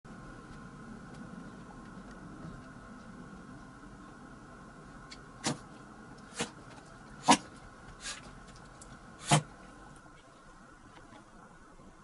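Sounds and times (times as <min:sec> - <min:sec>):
dog sneezing: 0:06.3 - 0:06.6, 0:07.2 - 0:08.2, 0:09.2 - 0:09.5.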